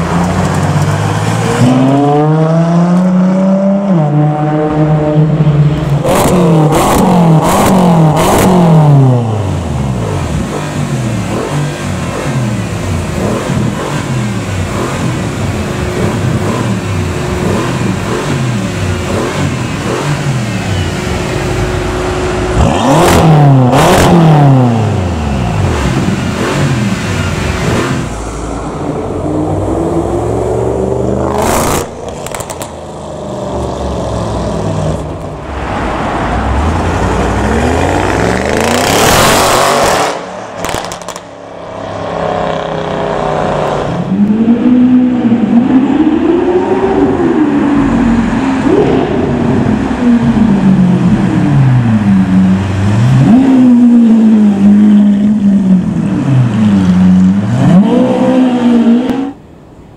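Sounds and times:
car engine revving: 0.0 - 59.4
second car revving and accelerating: 0.0 - 59.7
sharp exhaust cracks: 31.4 - 33.8, 38.8 - 41.4.

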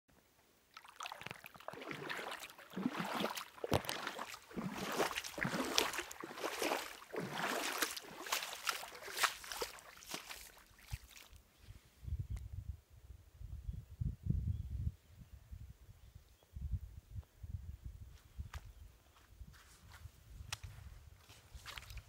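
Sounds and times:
shallow water splashing: 0.7 - 11.4.

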